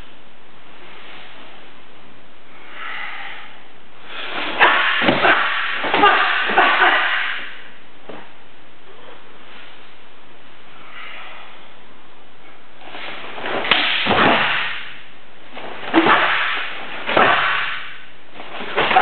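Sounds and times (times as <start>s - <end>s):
cloth snapping with swish: 12.9s - 15.0s.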